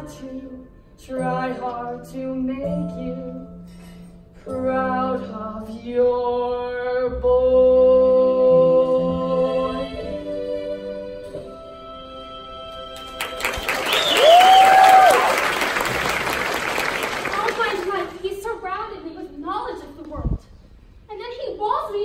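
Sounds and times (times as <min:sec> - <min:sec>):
musical accompaniment: 0:00.0 - 0:17.2.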